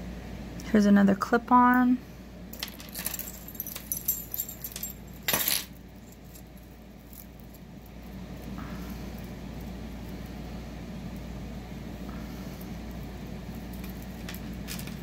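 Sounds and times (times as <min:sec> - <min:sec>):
metal chains rattling: 0:02.5 - 0:08.1, 0:13.4 - 0:15.0
jewelry clinking and jingling: 0:02.5 - 0:10.4, 0:12.8 - 0:15.0.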